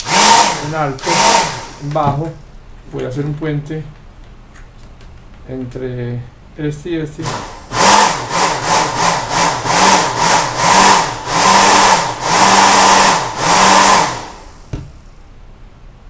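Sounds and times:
hair dryer motor whine: 0:00.0 - 0:02.2, 0:07.2 - 0:14.7.

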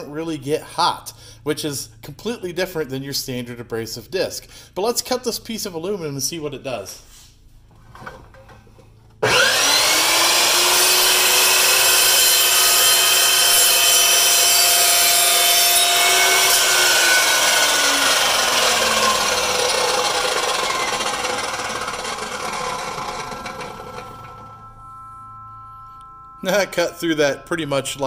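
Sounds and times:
metal chop saw cutting aluminium: 0:09.2 - 0:24.7.

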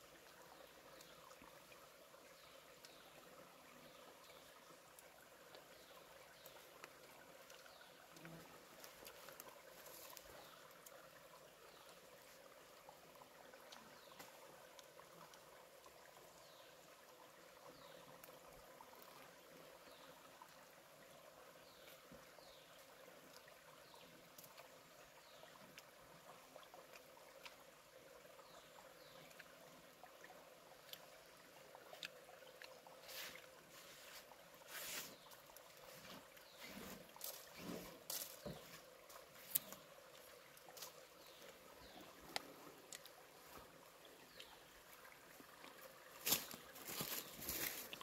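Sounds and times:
soft steady hiss: 0:00.0 - 0:48.0.

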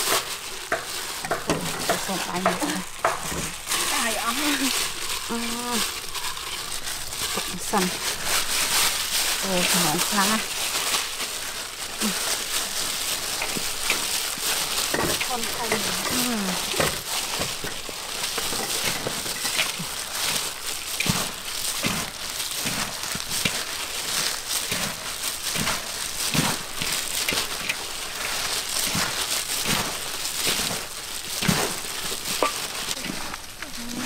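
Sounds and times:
wet crunchy rustling of sliced fruit: 0:00.0 - 0:34.0.

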